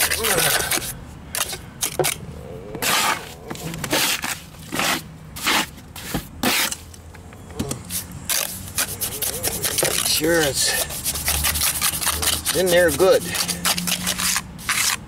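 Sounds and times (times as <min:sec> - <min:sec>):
trowel scraping cement on concrete: 0:00.0 - 0:02.2, 0:02.8 - 0:06.8, 0:07.8 - 0:15.0.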